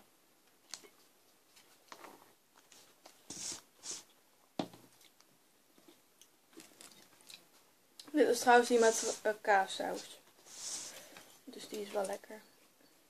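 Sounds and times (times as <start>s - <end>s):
soft rustles: 0.6s - 4.2s, 8.3s - 12.8s.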